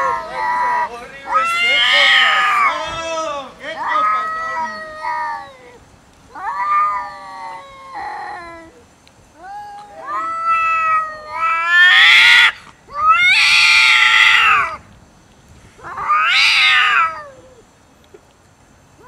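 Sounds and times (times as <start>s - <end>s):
cats yowling: 0.0s - 3.0s, 3.8s - 8.8s, 9.4s - 14.8s, 15.8s - 17.6s.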